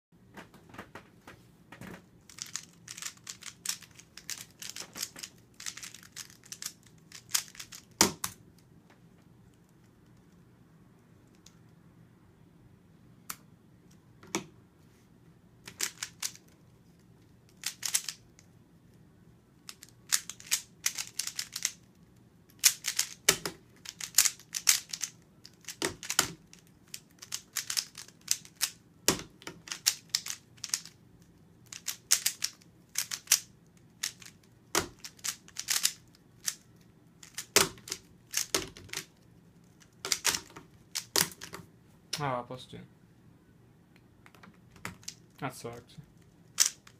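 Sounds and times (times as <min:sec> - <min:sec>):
puzzle cube layers clicking: 0:02.3 - 0:08.4, 0:15.7 - 0:16.5, 0:17.5 - 0:18.4, 0:19.7 - 0:21.8, 0:22.5 - 0:31.0, 0:31.6 - 0:39.1, 0:39.8 - 0:41.5, 0:46.5 - 0:46.9.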